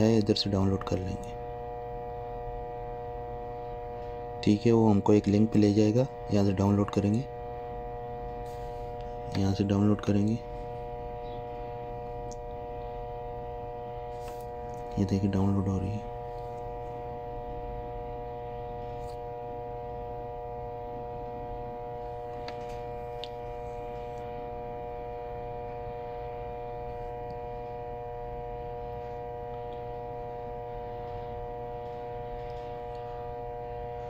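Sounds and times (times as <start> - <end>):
steady electrical hum: 0.0 - 34.0.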